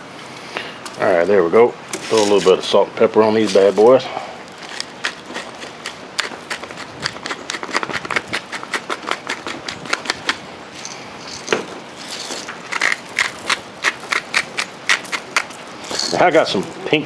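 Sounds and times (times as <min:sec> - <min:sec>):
pepper mill grinding: 0:04.5 - 0:16.6.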